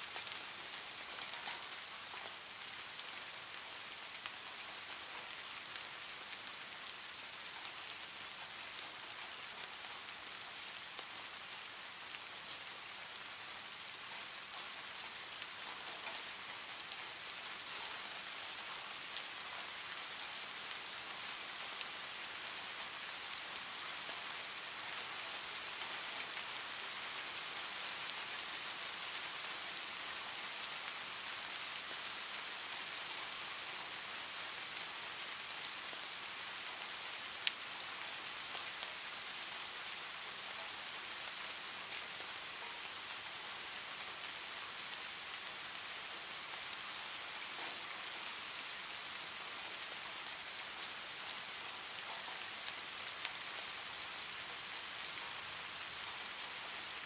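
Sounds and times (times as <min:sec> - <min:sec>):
heavy rain falling: 0:00.0 - 0:57.0.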